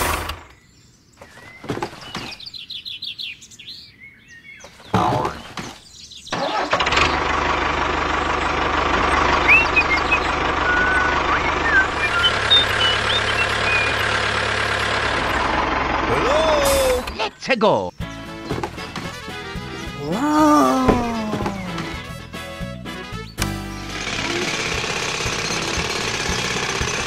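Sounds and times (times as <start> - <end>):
birds chirping: 0.4 - 27.0
tractor engine running: 6.3 - 27.0.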